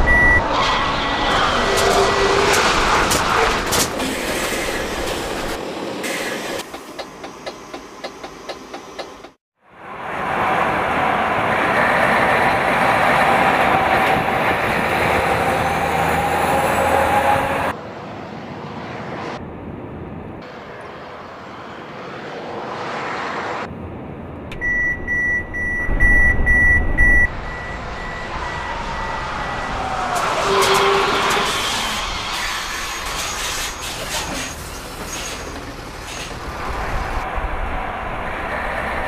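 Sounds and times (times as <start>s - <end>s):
high-pitched warning beep: 0.0s - 0.4s, 24.6s - 29.2s
truck driving at speed: 0.0s - 4.4s, 9.7s - 33.0s.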